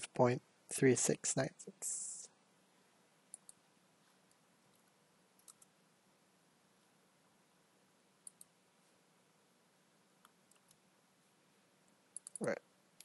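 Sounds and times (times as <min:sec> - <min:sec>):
faint computer mouse clicks: 0:03.3 - 0:03.6, 0:05.4 - 0:05.7, 0:08.2 - 0:08.5, 0:12.2 - 0:12.5.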